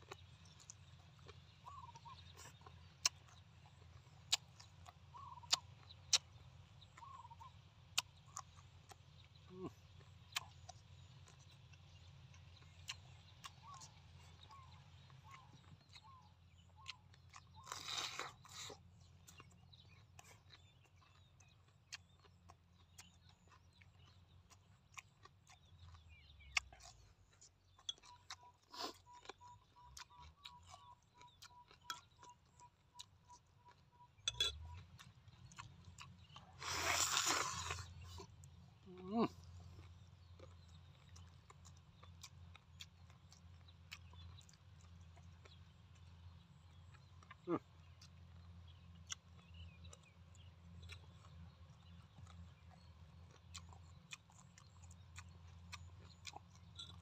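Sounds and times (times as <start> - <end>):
person chewing with wet mouth clicks: 0.1 - 38.6, 39.4 - 57.0
faint peeps: 1.6 - 3.4, 4.3 - 6.3, 9.4 - 10.5, 36.3 - 41.2, 47.2 - 48.2
meat being torn and bitten: 16.8 - 18.8.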